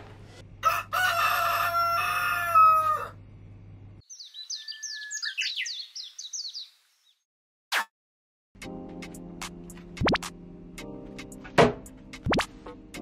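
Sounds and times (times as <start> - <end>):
rooster crowing: 0.6 - 3.2
small birds chirping: 4.0 - 7.3.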